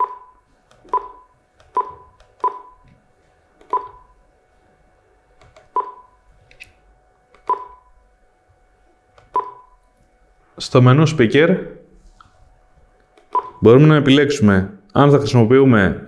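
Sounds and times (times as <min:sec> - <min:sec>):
short key-press beeps: 0:00.9 - 0:02.8, 0:03.7 - 0:04.1, 0:05.8 - 0:06.1, 0:07.4 - 0:07.8, 0:09.3 - 0:09.7, 0:13.3 - 0:13.6.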